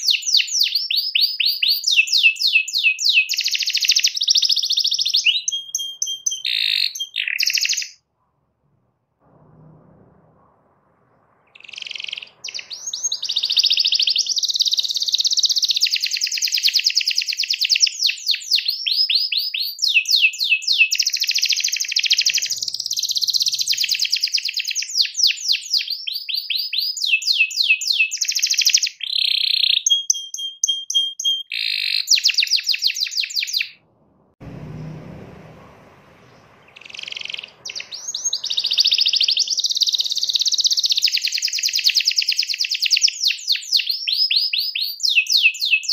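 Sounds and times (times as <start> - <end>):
canary singing trills: 0.0 - 8.0, 11.4 - 33.8, 36.2 - 45.9
faint low rumble: 8.0 - 14.9, 33.8 - 39.0.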